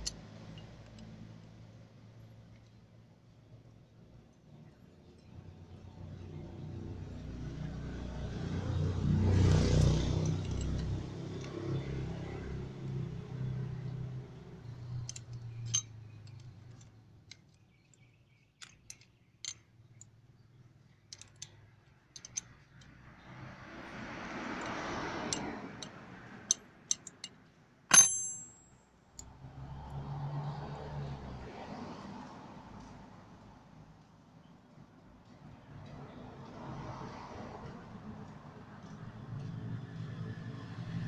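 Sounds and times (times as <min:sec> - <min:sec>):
traffic noise: 0:00.0 - 0:41.0
passing vehicle engine: 0:05.9 - 0:16.8, 0:22.5 - 0:26.8, 0:29.2 - 0:33.7, 0:35.6 - 0:41.0
small metal clicks and clinks: 0:09.7 - 0:11.9, 0:14.6 - 0:20.2, 0:20.9 - 0:23.3, 0:24.6 - 0:29.3.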